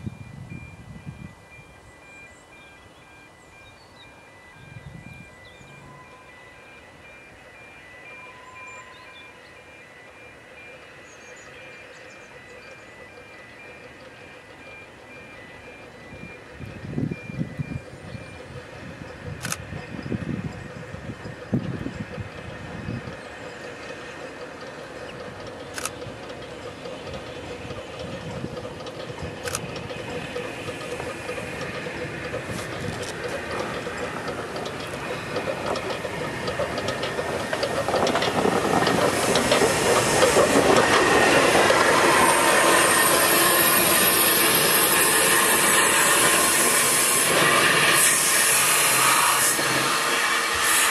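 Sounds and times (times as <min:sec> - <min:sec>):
steam locomotive running: 0:00.0 - 0:50.9
carriages rolling past: 0:07.9 - 0:50.9
loud steam hiss: 0:34.5 - 0:50.9.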